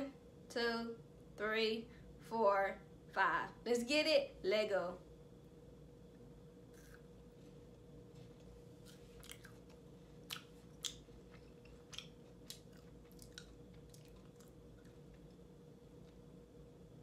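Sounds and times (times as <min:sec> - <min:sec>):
wet lip-smacking chewing: 0:08.4 - 0:16.2.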